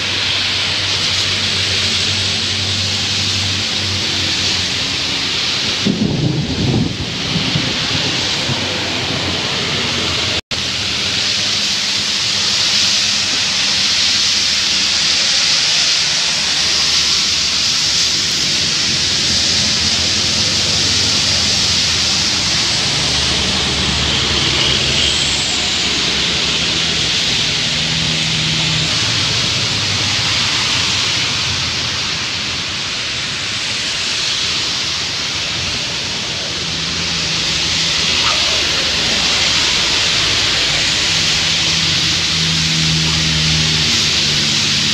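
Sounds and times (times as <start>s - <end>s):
heavy rain: 0.0s - 44.9s
passing traffic engines: 0.0s - 44.9s
tyre spray hissing on wet road: 0.0s - 44.9s.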